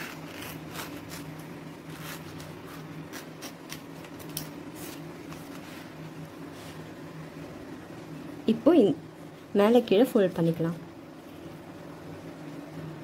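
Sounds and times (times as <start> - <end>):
knife cutting leaf on board: 0.0 - 5.7
steady low hum: 0.0 - 13.0.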